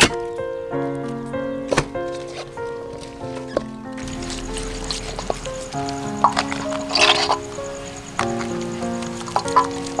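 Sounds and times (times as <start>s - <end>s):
music of held notes: 0.0s - 10.0s
sharp knock: 4.0s - 7.4s.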